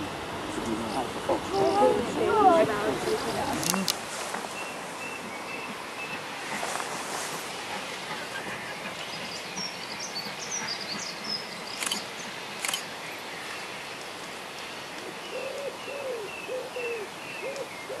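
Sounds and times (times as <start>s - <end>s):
birds chirping: 0.0s - 14.1s, 14.8s - 18.0s
sharp clicks: 3.6s - 4.0s, 11.8s - 12.9s.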